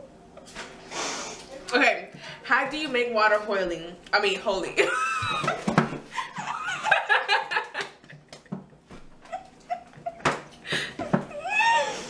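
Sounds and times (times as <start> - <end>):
women laughing: 4.8 - 12.0
muffled laughter: 5.0 - 11.3.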